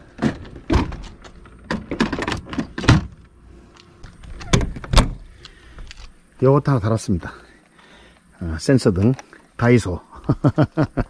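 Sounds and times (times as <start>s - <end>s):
knocks and thumps in camper van: 0.0s - 3.2s.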